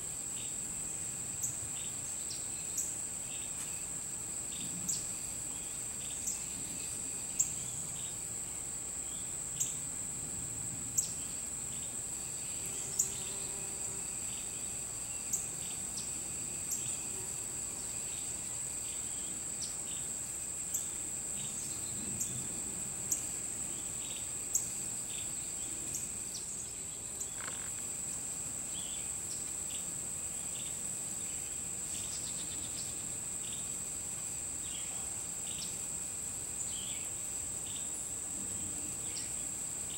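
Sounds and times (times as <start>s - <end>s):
insects high-pitched trill: 0.0s - 39.9s
soft repeating insect chirps: 0.0s - 39.9s
short sharp insect chirps: 23.8s - 28.0s.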